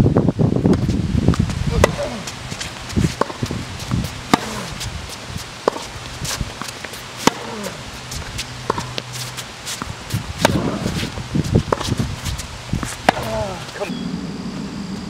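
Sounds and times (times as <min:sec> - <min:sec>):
ball bouncing on hard court: 0:00.7 - 0:02.2, 0:03.2 - 0:04.8, 0:05.6 - 0:05.9, 0:06.6 - 0:07.7, 0:09.8 - 0:11.1, 0:11.7 - 0:13.9
tennis ball struck by rackets: 0:01.4 - 0:13.9.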